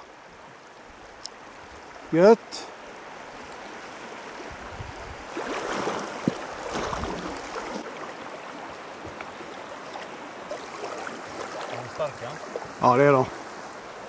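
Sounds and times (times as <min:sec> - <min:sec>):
stony river flowing: 0:00.0 - 0:14.0
splashing and rustling: 0:04.5 - 0:13.8.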